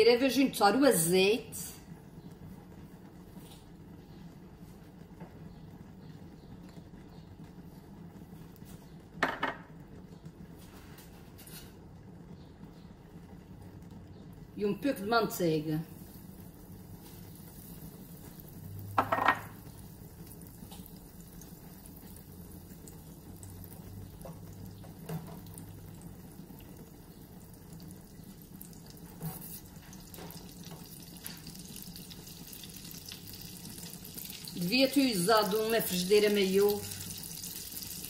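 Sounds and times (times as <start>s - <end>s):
butter sizzling in a frying pan: 14.3s - 38.0s.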